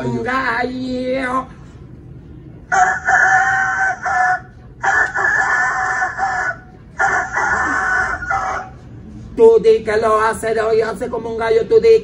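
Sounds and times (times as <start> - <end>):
rooster crowing: 2.7 - 8.8.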